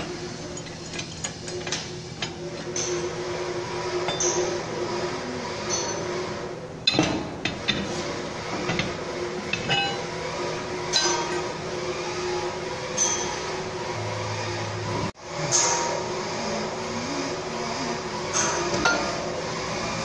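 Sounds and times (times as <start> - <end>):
steel parts clinking: 0.4 - 3.1, 8.6 - 10.2, 18.4 - 19.3.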